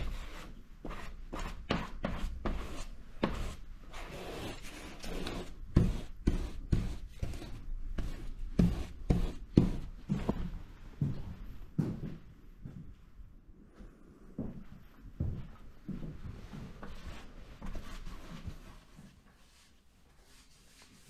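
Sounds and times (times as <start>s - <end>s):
paintbrush scrubbing paper: 0.0s - 10.0s, 17.6s - 21.0s.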